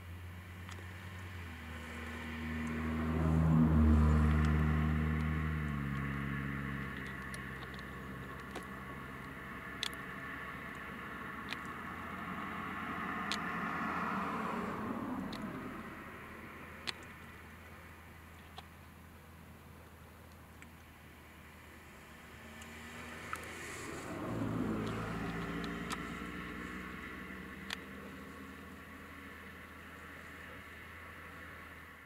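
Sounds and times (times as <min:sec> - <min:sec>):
steady road rush: 0:00.0 - 0:32.0
vehicle driving past: 0:00.4 - 0:18.0, 0:21.2 - 0:32.0
faint sharp clicks: 0:00.6 - 0:01.3, 0:04.1 - 0:06.1, 0:06.9 - 0:15.8, 0:16.8 - 0:17.7, 0:22.6 - 0:26.6, 0:27.6 - 0:30.7.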